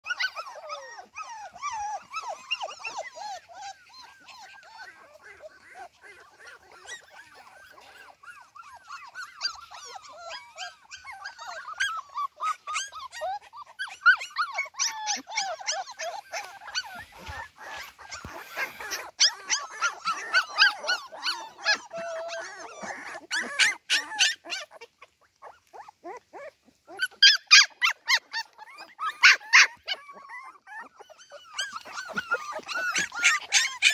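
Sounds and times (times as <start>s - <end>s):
puppies whimpering and yipping: 0.0s - 33.9s.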